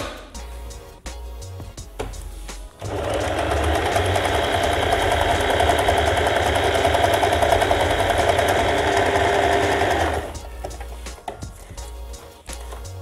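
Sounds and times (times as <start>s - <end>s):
electric sewing machine running: 2.8s - 10.4s.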